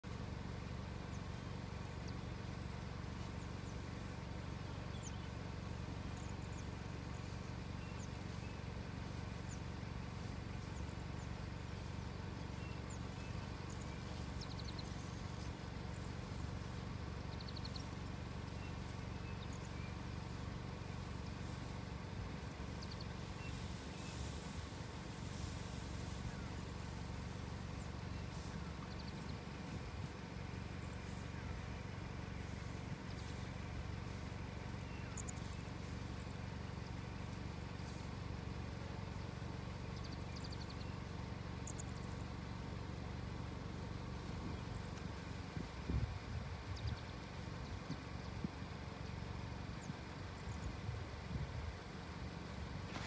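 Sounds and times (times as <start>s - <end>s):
low background rumble: 0.0s - 53.0s
bird chirps and trills: 3.2s - 24.6s, 26.0s - 38.0s.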